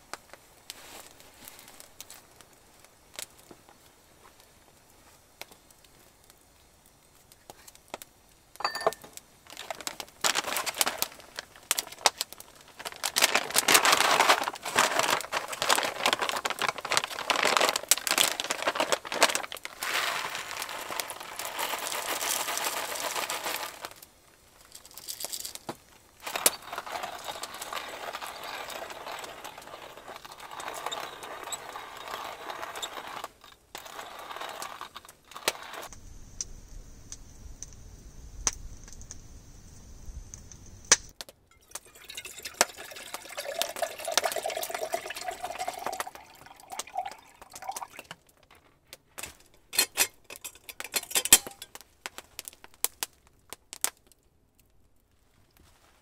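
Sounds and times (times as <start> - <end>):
coffee grinder crunching beans: 9.5 - 24.0, 24.7 - 25.6, 26.2 - 36.0, 41.7 - 48.1.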